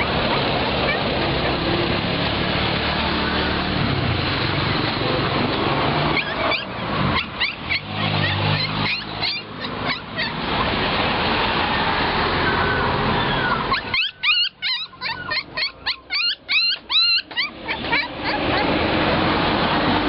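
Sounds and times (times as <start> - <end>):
puppies yipping and whimpering: 0.0 - 1.6, 6.1 - 11.0, 13.1 - 19.0
rushing background noise: 0.0 - 20.0.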